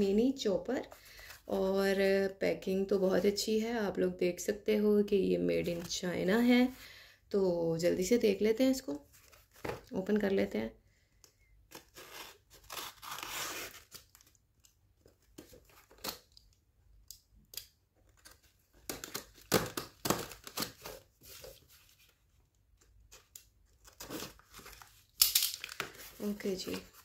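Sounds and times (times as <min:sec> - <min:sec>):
packaging tearing and crinkling: 0:11.7 - 0:14.4, 0:18.2 - 0:21.0.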